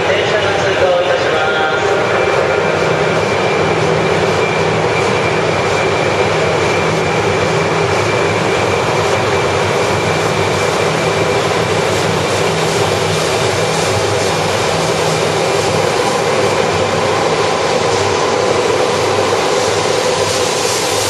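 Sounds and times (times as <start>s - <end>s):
faint high whine: 0.0s - 21.0s
low hum: 0.0s - 21.0s
train wheels running: 0.0s - 21.0s.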